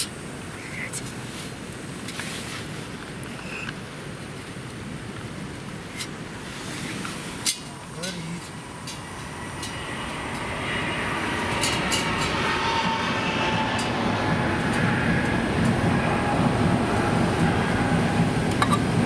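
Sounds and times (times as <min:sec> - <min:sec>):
train rumbling past: 0:06.4 - 0:19.0
faint wavering whine: 0:06.8 - 0:19.0.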